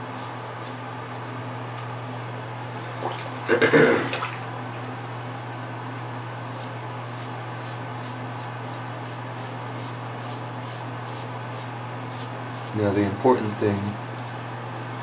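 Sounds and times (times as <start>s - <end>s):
razor scraping stubble: 6.4s - 14.4s.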